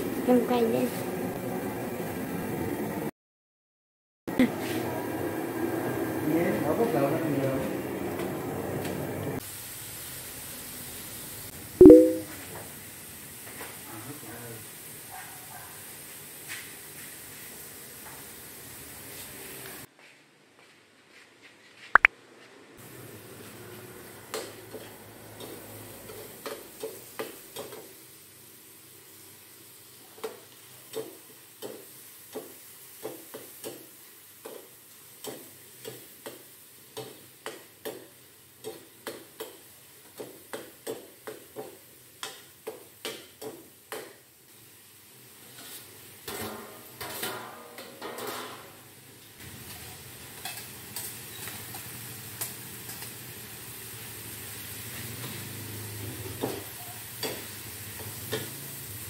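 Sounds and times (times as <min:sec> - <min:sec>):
food sizzling: 0:09.4 - 0:19.9, 0:22.8 - 0:59.0.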